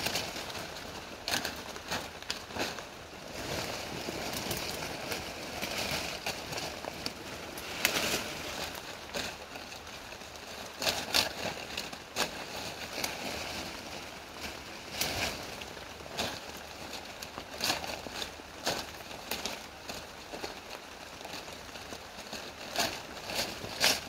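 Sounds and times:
stems snapping: 0.0s - 2.9s
foliage rustling: 0.0s - 24.0s.

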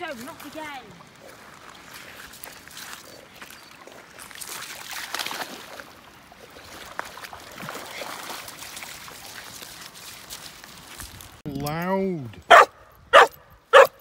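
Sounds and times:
dogs splashing in water: 0.0s - 11.4s
water sloshing: 0.0s - 11.4s.

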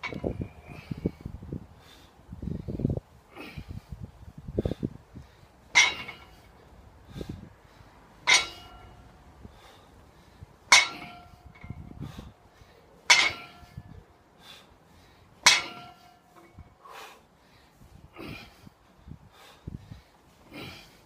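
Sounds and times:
barbell plates clanking on ground: 0.0s - 0.8s, 5.7s - 6.5s, 8.2s - 9.0s, 10.7s - 11.9s, 13.1s - 13.8s, 15.4s - 16.6s.

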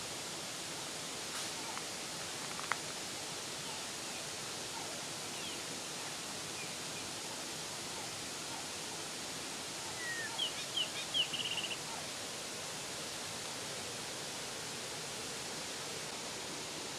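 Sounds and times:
creek water running: 0.0s - 16.9s.

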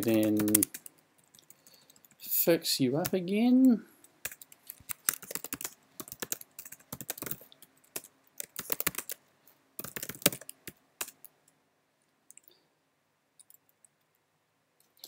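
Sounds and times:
typing on computer keyboard: 0.0s - 2.2s, 4.2s - 9.2s, 9.8s - 11.4s.

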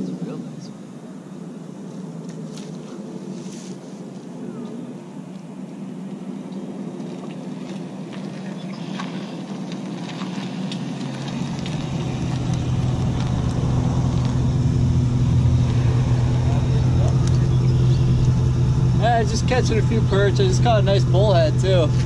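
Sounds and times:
engine humming: 6.1s - 22.0s.

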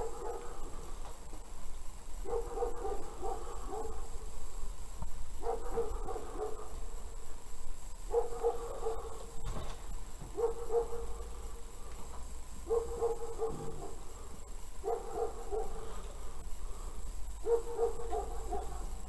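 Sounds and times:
dog barking: 0.0s - 0.8s, 2.2s - 4.2s, 5.4s - 6.9s, 8.1s - 9.4s, 10.3s - 11.2s, 12.6s - 14.1s, 14.8s - 16.0s, 17.4s - 19.0s.

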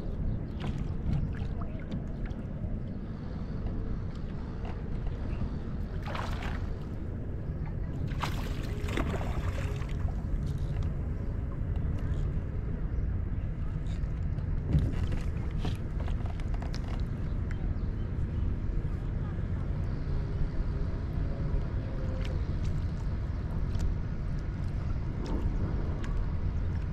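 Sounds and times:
wind rumble on microphone: 0.0s - 26.9s
water lapping against kayak hull: 0.4s - 10.8s
short water splashes: 5.9s - 7.0s, 7.8s - 10.2s.

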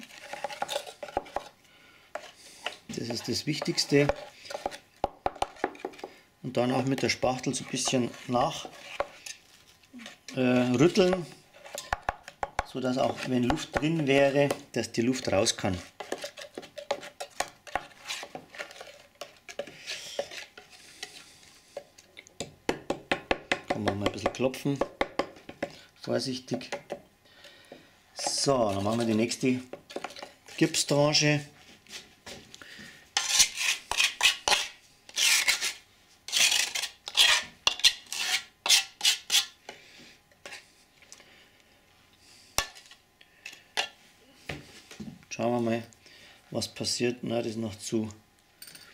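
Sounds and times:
metal spatula scraping wet plaster: 0.0s - 21.4s, 28.2s - 31.2s, 33.2s - 39.6s.

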